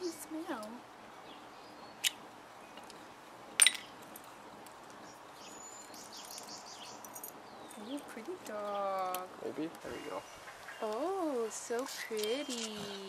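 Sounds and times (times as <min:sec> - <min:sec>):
dog collar buckle clinking: 0:05.9 - 0:08.0.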